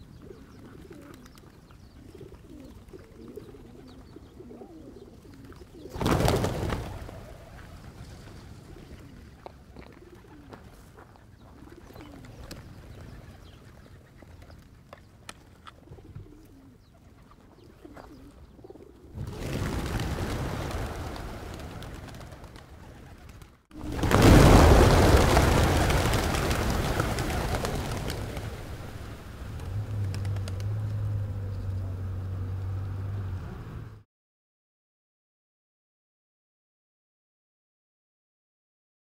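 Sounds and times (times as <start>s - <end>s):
pigeons cooing: 0.0s - 15.0s, 15.7s - 32.5s
many wings flapping: 0.1s - 14.9s, 19.0s - 31.5s.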